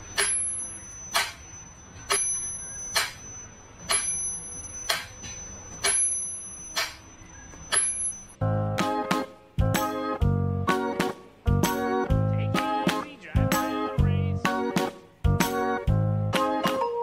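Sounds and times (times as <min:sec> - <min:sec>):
metronome bell ring: 0:00.0 - 0:08.4.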